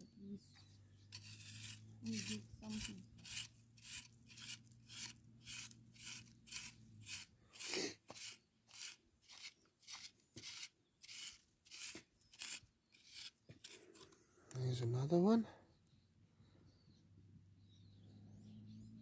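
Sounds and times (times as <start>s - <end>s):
scraping in sandy soil: 1.0s - 14.2s.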